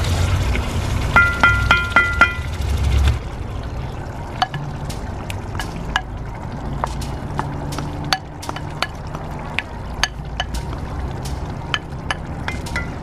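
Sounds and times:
low rumble: 0.0 - 8.2.

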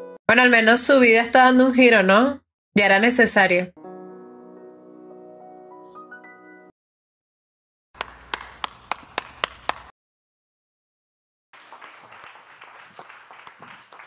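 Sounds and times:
person clapping sharply: 8.0 - 9.9, 11.6 - 14.0
soft applause: 8.0 - 9.9, 11.6 - 14.0.

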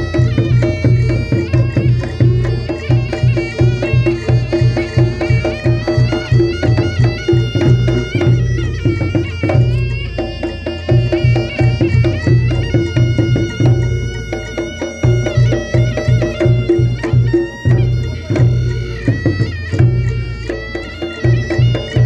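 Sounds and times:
drums and gongs beat: 0.0 - 22.0
reedy shawm melody: 0.0 - 22.0.

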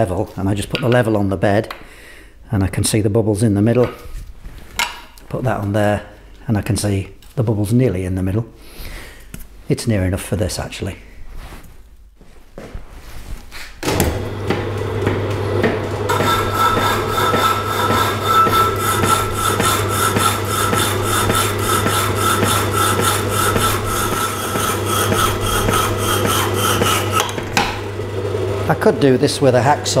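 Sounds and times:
electric motor humming: 14.0 - 30.0
hacksaw blade sawing steel: 16.1 - 27.4.

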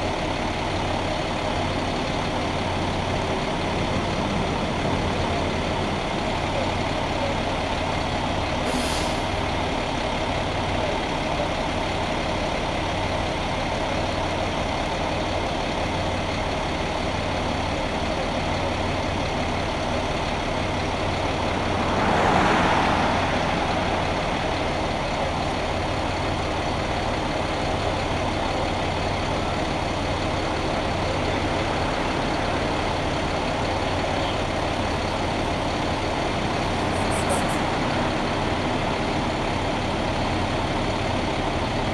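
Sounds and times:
truck engine idling: 0.0 - 41.9
rushing noise: 21.0 - 26.0.

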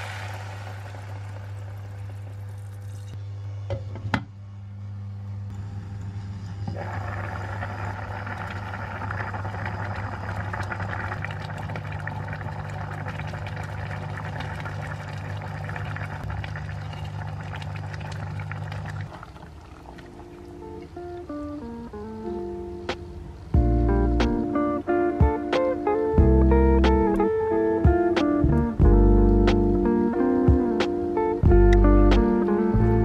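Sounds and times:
steady low hum: 0.0 - 33.0
curry bubbling in saucepan: 6.8 - 21.0.

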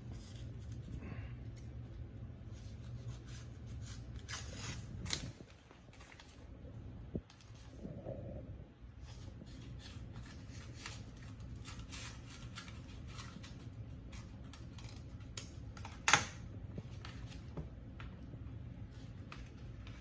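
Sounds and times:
scissors snipping paper: 9.7 - 16.3.

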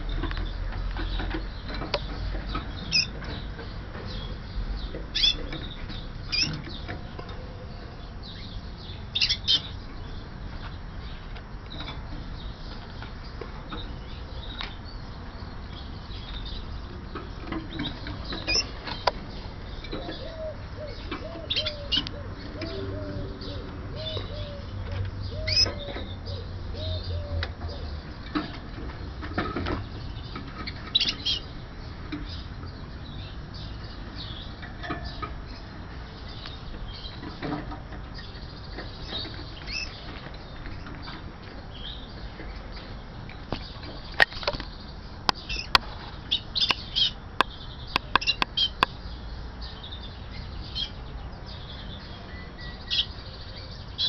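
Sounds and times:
canaries fluttering and hopping: 0.0 - 7.4, 8.4 - 22.5, 28.0 - 47.4
canary chirps: 0.0 - 54.0.

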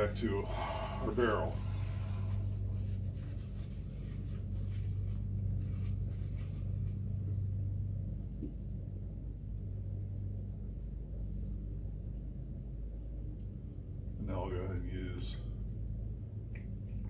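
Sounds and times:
paper towel rustling: 0.0 - 8.4
low hum: 0.0 - 17.0.

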